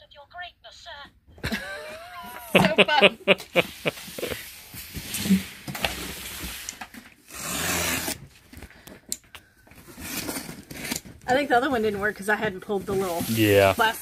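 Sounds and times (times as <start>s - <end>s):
knife slitting packing tape: 7.3s - 8.2s.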